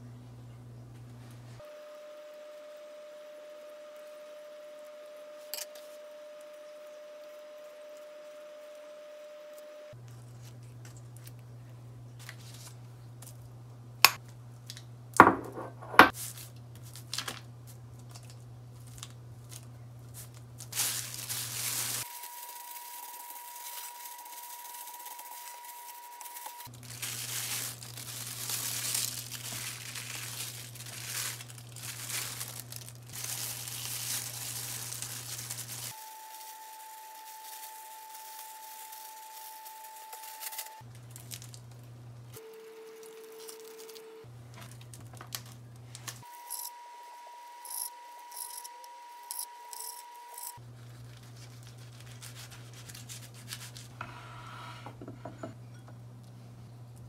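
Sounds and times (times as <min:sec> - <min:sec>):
knife knocking on cutting board: 0:15.2 - 0:16.1
plastic gloves crinkling: 0:16.2 - 0:41.9, 0:42.9 - 0:46.3, 0:50.6 - 0:53.9.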